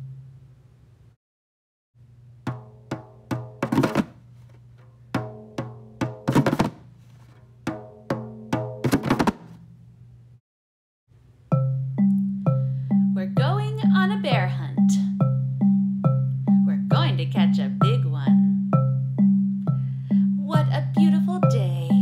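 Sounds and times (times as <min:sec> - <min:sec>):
hand drum hits: 0:02.5 - 0:04.2, 0:05.1 - 0:06.8, 0:07.6 - 0:09.6.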